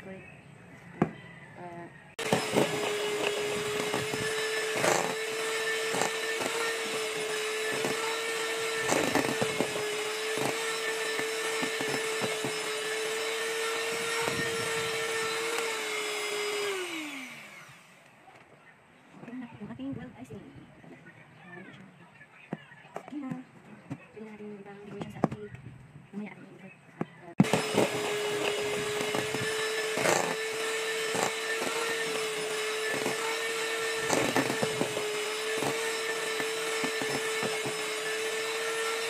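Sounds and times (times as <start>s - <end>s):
electric hand mixer humming: 2.1s - 18.2s, 27.3s - 39.0s.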